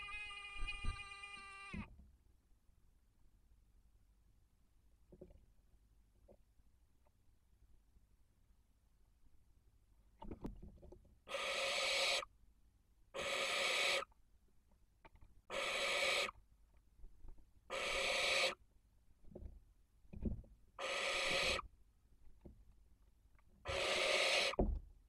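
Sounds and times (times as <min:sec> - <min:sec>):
owls hissing screeches: 0:00.0 - 0:01.9, 0:11.3 - 0:12.3, 0:13.2 - 0:14.1, 0:15.5 - 0:16.4, 0:17.7 - 0:18.6, 0:20.8 - 0:21.6, 0:23.7 - 0:24.6.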